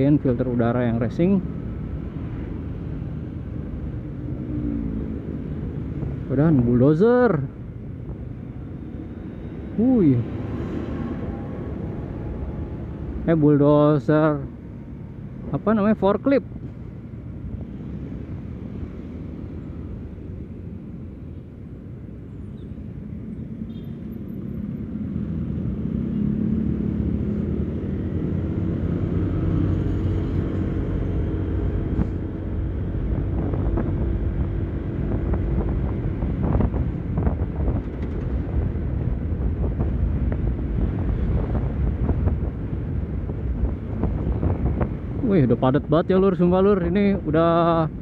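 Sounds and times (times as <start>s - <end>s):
wind rumble on microphone: 24.2s - 45.9s.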